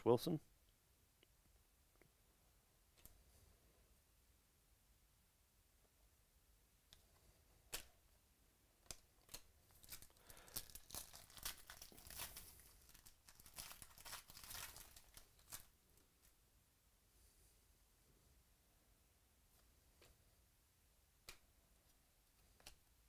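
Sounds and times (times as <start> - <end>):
foil wrapper tearing and crinkling: 9.2 - 15.7.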